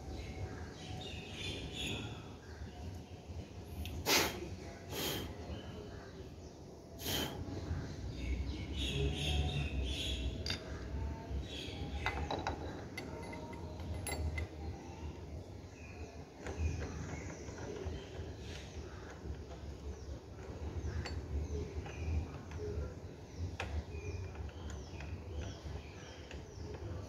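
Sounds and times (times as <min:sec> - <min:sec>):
metal parts knocking and clicking: 0:10.4 - 0:10.9, 0:11.8 - 0:14.8.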